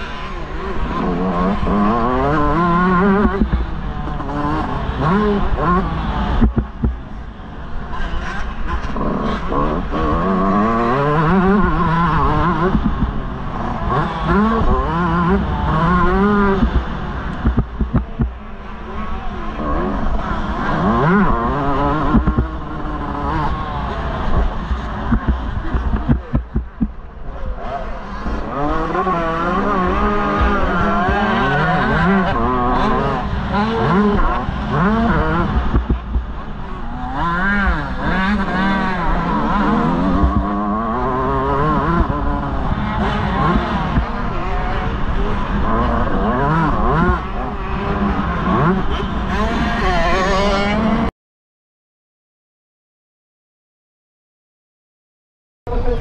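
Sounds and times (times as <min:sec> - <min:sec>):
motocross bike engine revving: 0:00.0 - 0:51.1
wind rumble on microphone: 0:00.0 - 0:51.1.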